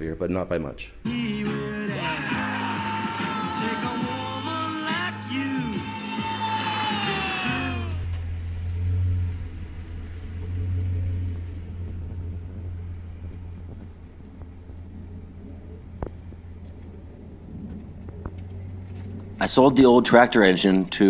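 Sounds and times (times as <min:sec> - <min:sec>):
vehicle engine rumbling: 0:06.9 - 0:21.0.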